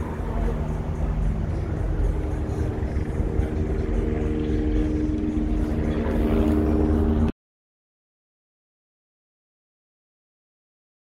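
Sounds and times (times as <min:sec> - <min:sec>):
engine drone: 0:00.0 - 0:07.3.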